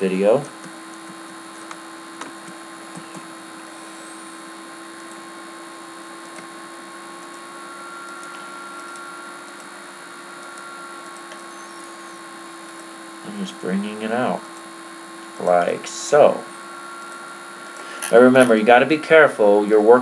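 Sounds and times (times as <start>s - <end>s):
electrical hum and hiss: 0.0s - 20.0s
faint clicks: 8.0s - 9.7s.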